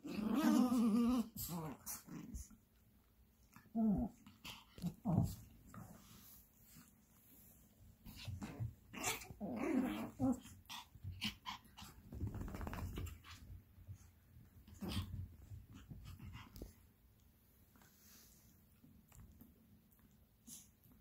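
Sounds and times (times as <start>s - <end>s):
small dogs growling: 0.0s - 2.7s, 3.4s - 6.2s, 8.0s - 13.6s, 14.6s - 16.7s.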